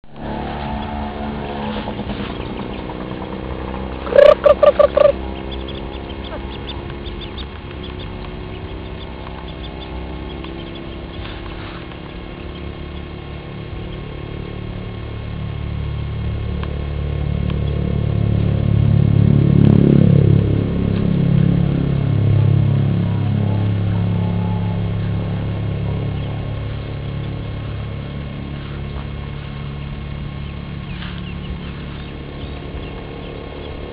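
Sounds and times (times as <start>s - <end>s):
low engine hum: 0.0s - 33.9s
ducklings peeping: 1.7s - 14.9s, 23.4s - 27.4s, 28.2s - 33.9s.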